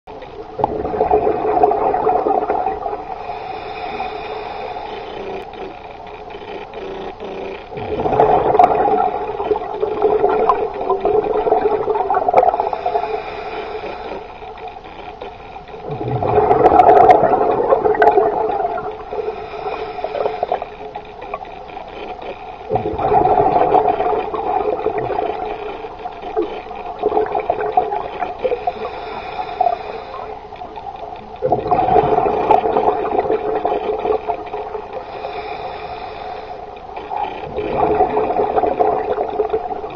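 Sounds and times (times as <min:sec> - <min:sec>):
exhaled bubbles underwater: 0:00.1 - 0:05.5, 0:07.7 - 0:14.3, 0:15.7 - 0:21.5, 0:22.7 - 0:39.9
regulator inhalation hiss: 0:02.7 - 0:05.9, 0:10.6 - 0:14.6, 0:18.7 - 0:21.4, 0:28.0 - 0:30.7, 0:34.6 - 0:37.4.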